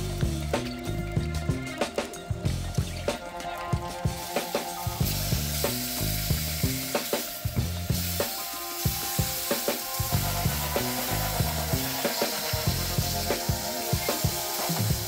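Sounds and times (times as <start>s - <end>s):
meat sizzling in a skillet: 4.2s - 15.0s.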